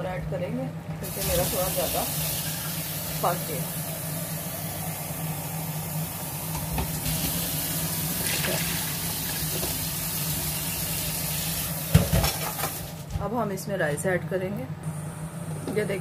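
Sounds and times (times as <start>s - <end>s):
steady low hum: 0.0s - 11.2s, 12.0s - 16.0s
boiling liquid bubbling: 1.2s - 13.1s
water pouring into a pot: 6.9s - 11.9s.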